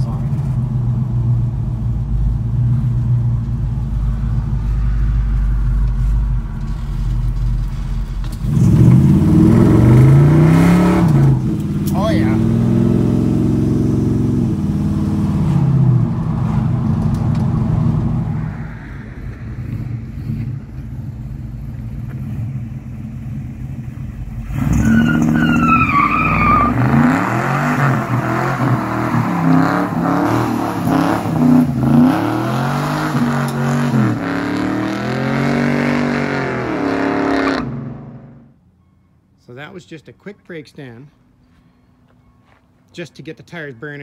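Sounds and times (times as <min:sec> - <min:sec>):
car engine pulling hard: 0:00.0 - 0:18.4, 0:19.0 - 0:38.4
engine revving up and down: 0:08.4 - 0:18.4, 0:26.2 - 0:38.4
tire squeal: 0:24.4 - 0:32.1.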